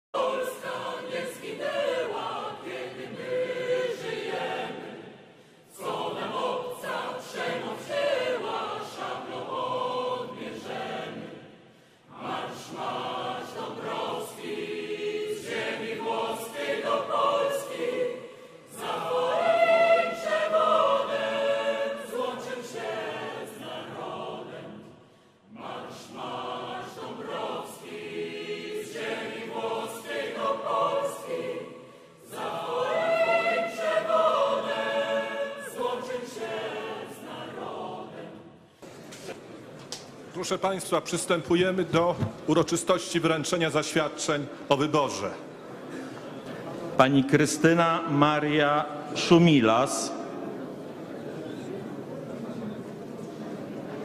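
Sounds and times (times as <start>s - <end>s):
mixed choir singing: 0.1s - 39.8s.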